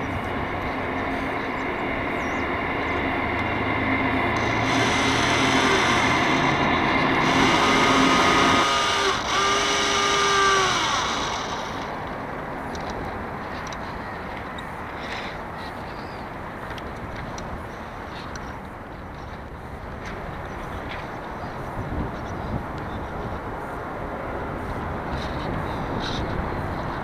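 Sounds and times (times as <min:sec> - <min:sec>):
winch servo whining: 0:04.3 - 0:12.0.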